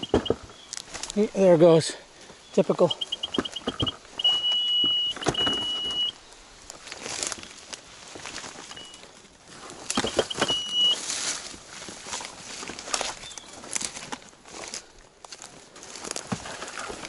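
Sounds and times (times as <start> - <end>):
electronic beeper tones: 0.0 - 0.5, 2.8 - 6.2, 8.7 - 9.0, 9.9 - 11.0
brush rustling: 0.0 - 17.0
footsteps on forest floor: 0.0 - 17.0.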